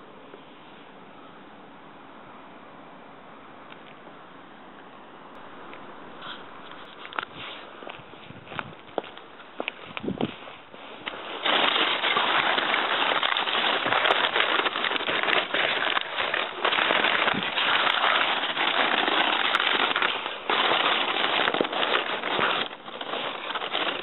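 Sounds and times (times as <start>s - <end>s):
cardboard and plastic crackling: 10.8s - 24.0s.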